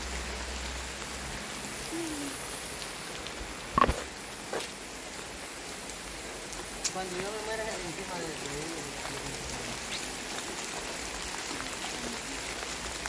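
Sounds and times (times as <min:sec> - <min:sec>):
steady rain: 0:00.0 - 0:13.0.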